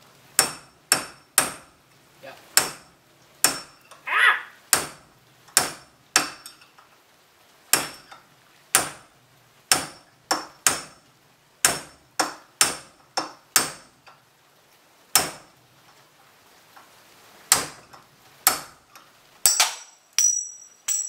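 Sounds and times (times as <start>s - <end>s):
hammer striking steel punch: 0.4s - 1.7s, 2.6s - 3.8s, 5.6s - 6.5s, 7.7s - 8.1s, 9.7s - 11.0s, 11.6s - 13.8s, 19.5s - 21.0s.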